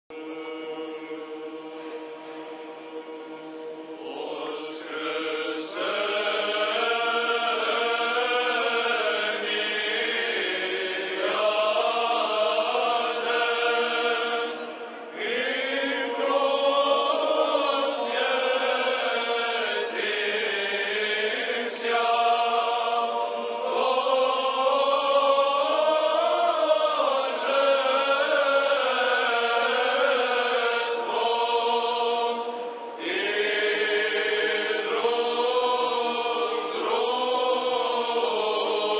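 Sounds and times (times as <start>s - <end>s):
choir chanting a hymn: 0.1s - 38.9s
singers breathing: 32.4s - 33.0s.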